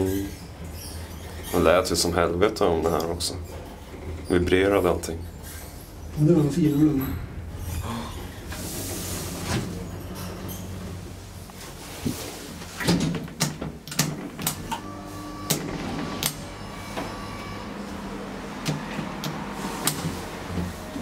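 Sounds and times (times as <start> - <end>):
low elevator hum: 0.0 - 12.8.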